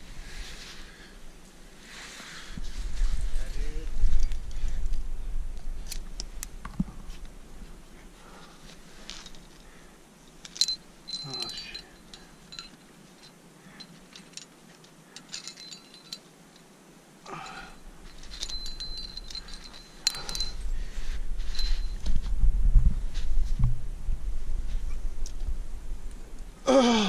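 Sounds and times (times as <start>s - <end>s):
climbing gear clinking: 9.0s - 22.3s
low rumbling noise: 17.7s - 27.0s.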